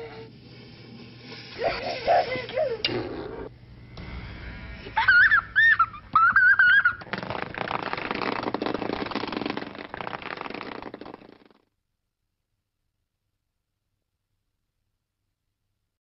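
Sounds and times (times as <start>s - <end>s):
child whooping: 5.0s - 7.0s.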